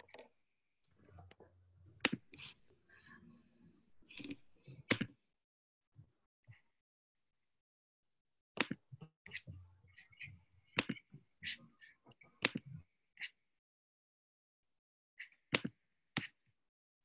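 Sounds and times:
clicks and taps at a computer: 0.0 - 0.3.

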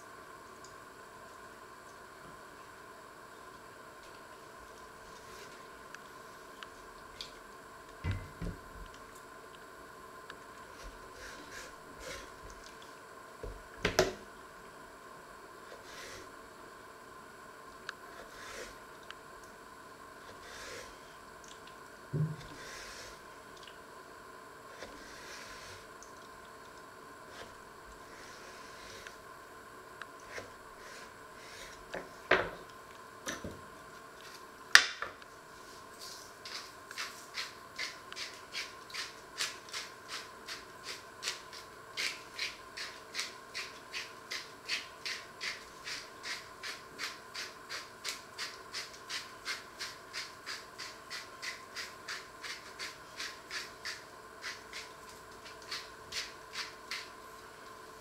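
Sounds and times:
spice mill grinding: 36.4 - 57.2.

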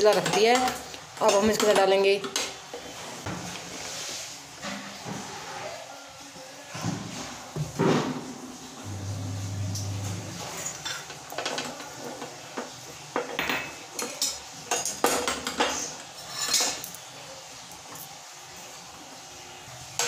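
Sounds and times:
metal utensils and pots clinking: 0.0 - 3.8, 8.8 - 18.2.

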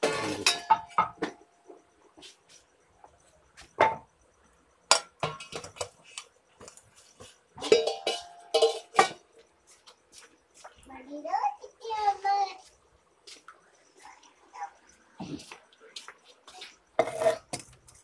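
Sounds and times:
metal pots and pans clanking: 0.0 - 1.4, 4.9 - 6.1, 7.6 - 9.3.

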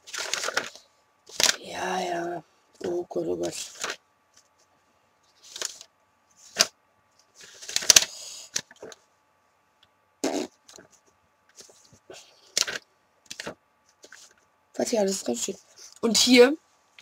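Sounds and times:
paper pages rustling: 0.0 - 1.6, 2.8 - 4.7, 5.3 - 9.0, 10.6 - 14.5.

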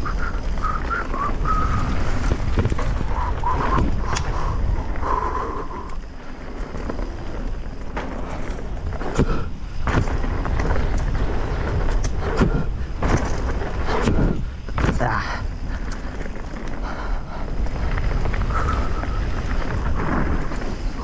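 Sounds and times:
bike knocking and rattling: 0.0 - 21.0
tyres rumbling on dirt: 0.0 - 21.0
wind rushing over microphone: 0.0 - 21.0.

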